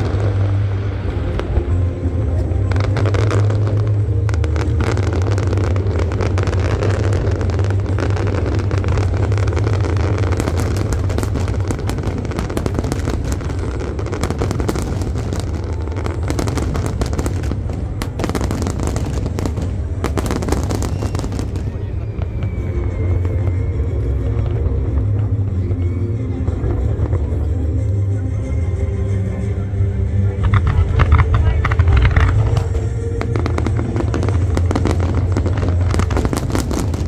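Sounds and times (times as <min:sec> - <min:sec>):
fireworks crackling and popping: 0:00.0 - 0:28.1, 0:30.3 - 0:37.0
deep rumble: 0:00.0 - 0:37.0.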